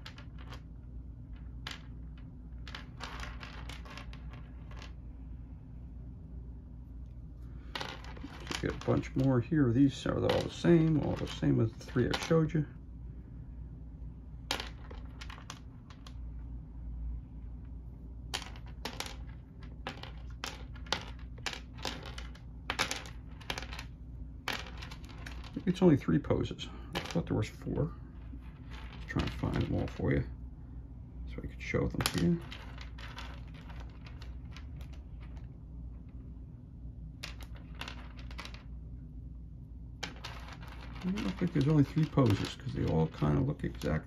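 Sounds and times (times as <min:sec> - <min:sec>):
low steady hum: 0:00.0 - 0:44.0
plastic figures clattering on wood: 0:07.7 - 0:09.3, 0:18.4 - 0:23.9, 0:40.0 - 0:44.0.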